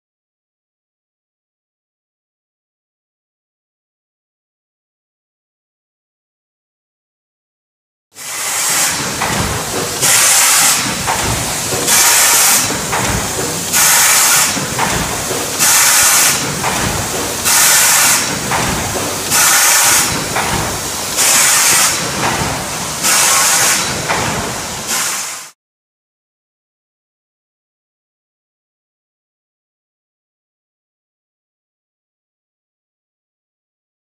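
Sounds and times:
compressed air hissing: 0:08.2 - 0:25.5
machine humming: 0:08.3 - 0:24.8.

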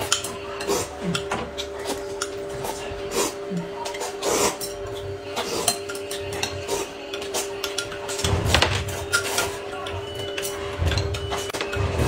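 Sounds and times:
noodles being slurped: 0:03.0 - 0:04.7.

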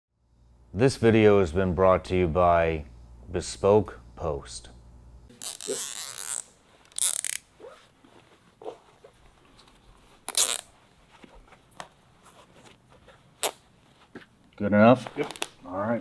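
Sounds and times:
zip tie ratcheting: 0:05.3 - 0:07.8, 0:10.2 - 0:10.7, 0:13.4 - 0:13.6
cloth rustle: 0:05.4 - 0:14.3.

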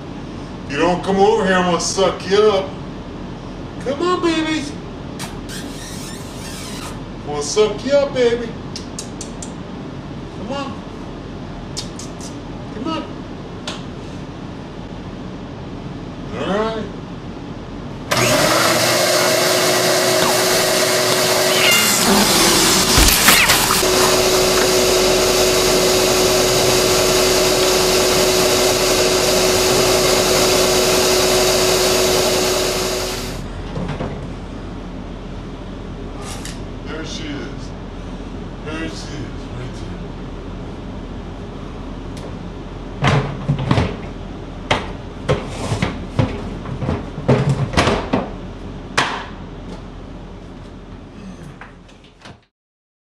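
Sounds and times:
vacuum cleaner running: 0:18.1 - 0:33.5.

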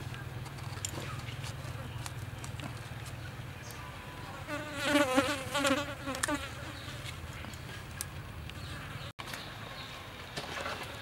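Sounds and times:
flying insect buzzing: 0:04.4 - 0:07.1.

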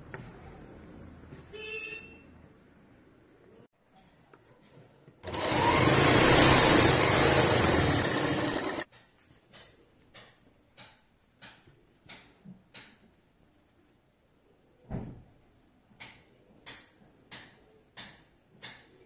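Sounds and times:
sewing machine stitching: 0:05.2 - 0:08.9.

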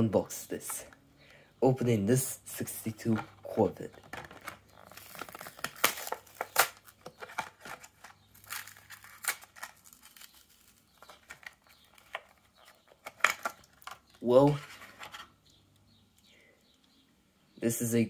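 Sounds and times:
plastic blister crackling and tearing: 0:03.8 - 0:15.2.

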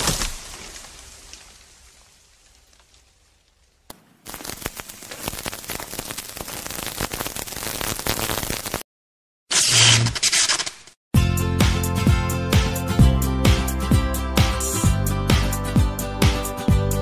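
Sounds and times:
power line crackling with sparks: 0:00.0 - 0:08.8.

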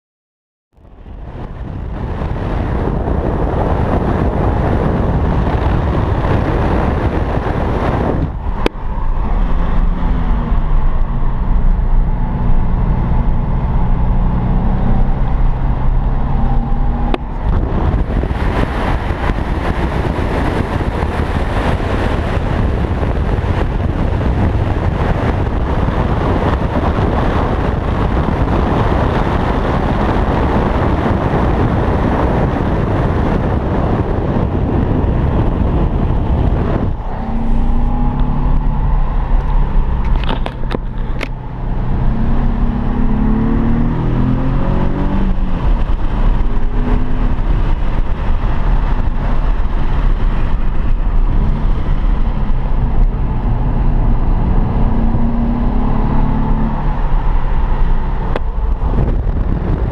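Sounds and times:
wind and road noise: 0:00.7 - 0:59.9
car engine note: 0:34.7 - 0:59.8.

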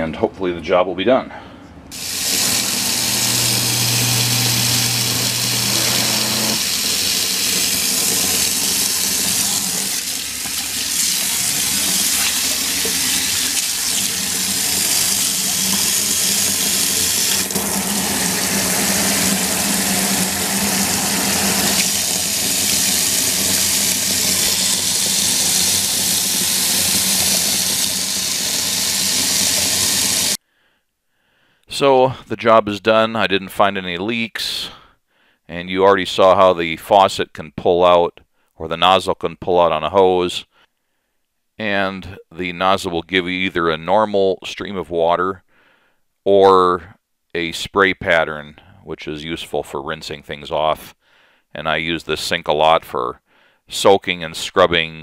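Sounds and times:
low hum: 0:02.0 - 0:06.8
faucet water splashing into sink: 0:02.0 - 0:30.4.

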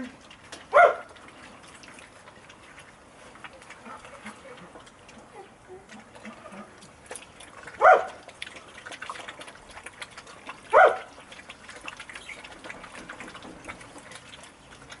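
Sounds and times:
puppies eating from steel bowls: 0:00.0 - 0:15.0
dog barks: 0:00.7 - 0:01.1, 0:07.8 - 0:08.2, 0:10.7 - 0:11.1.

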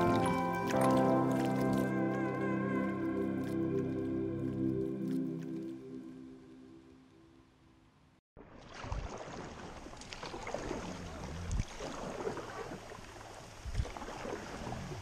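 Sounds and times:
paddle splashing: 0:00.0 - 0:05.7, 0:08.4 - 0:15.0
background music: 0:00.0 - 0:07.3
water lapping against hull: 0:08.4 - 0:15.0.

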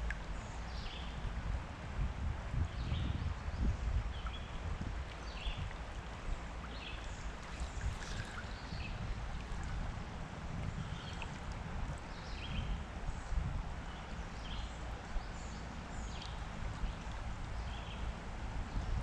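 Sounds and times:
water rushing around wading legs: 0:04.1 - 0:18.5.

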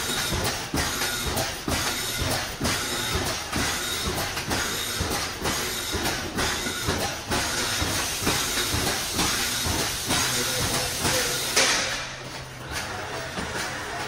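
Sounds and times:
welding machine clattering: 0:00.0 - 0:14.0
air hiss burst: 0:07.4 - 0:12.0.

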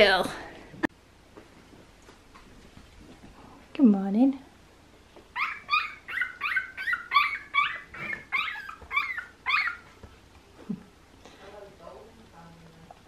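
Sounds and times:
puppy squealing: 0:05.4 - 0:09.9.

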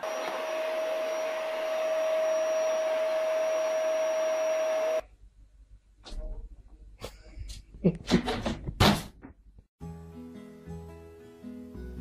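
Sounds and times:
appliance motor whirring: 0:00.0 - 0:05.0.

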